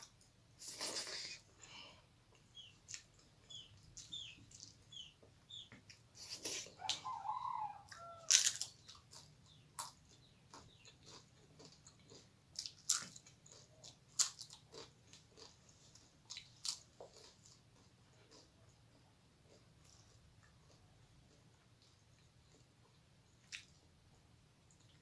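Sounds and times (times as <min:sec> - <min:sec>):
crisp food crunching: 0:08.0 - 0:22.7.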